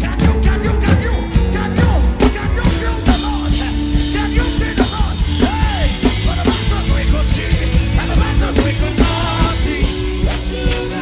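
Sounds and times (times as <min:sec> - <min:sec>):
drum kit played hard: 0:00.0 - 0:11.0
steady bass: 0:00.0 - 0:11.0.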